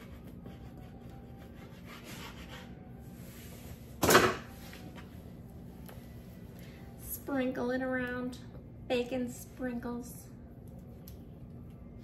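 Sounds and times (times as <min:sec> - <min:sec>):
knife scraping on cutting board: 0:00.0 - 0:02.8.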